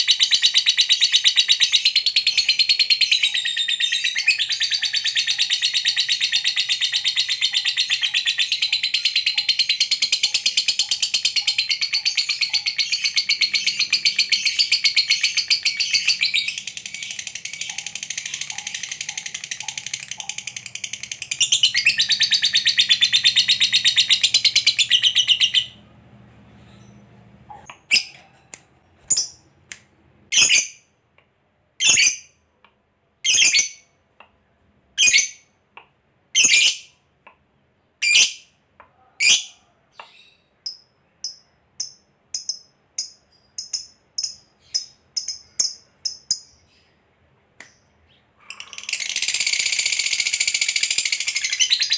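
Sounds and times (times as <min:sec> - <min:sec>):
bird sharp chirps: 0:00.0 - 0:25.8
bird rapid chattering trill: 0:04.3 - 0:25.7, 0:48.4 - 0:51.9.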